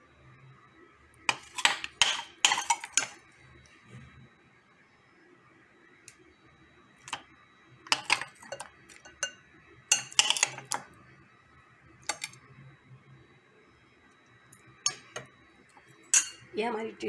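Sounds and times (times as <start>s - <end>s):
utensils clinking against plates: 1.3s - 3.2s, 7.9s - 10.8s, 16.1s - 16.5s.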